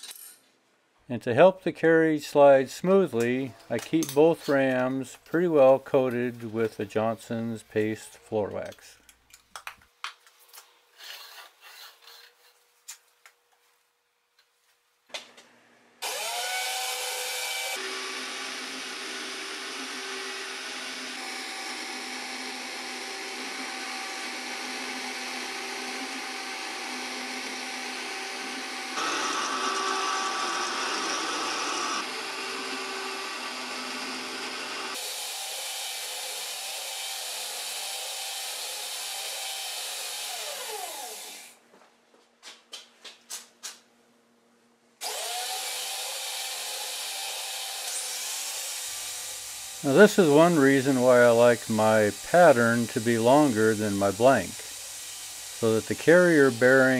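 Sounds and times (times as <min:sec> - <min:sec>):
angle grinder cutting wood: 0:16.0 - 0:41.6, 0:45.0 - 0:56.9.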